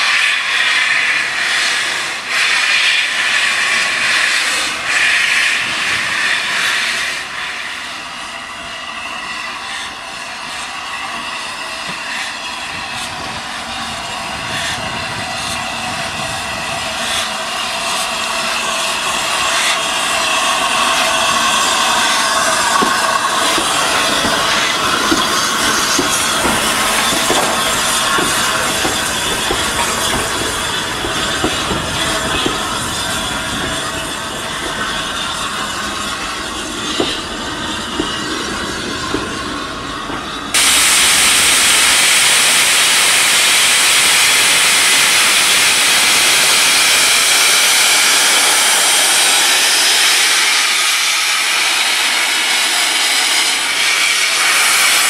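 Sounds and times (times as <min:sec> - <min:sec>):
loud hiss of steam: 0:00.0 - 0:55.0
train wheels knocking over rail joints: 0:21.3 - 0:40.7.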